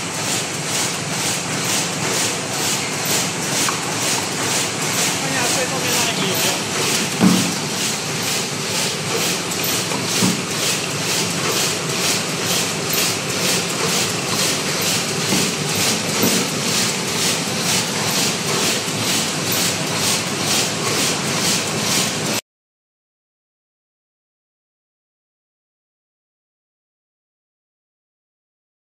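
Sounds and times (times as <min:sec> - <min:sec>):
paper cup machine running: 0:00.0 - 0:22.4.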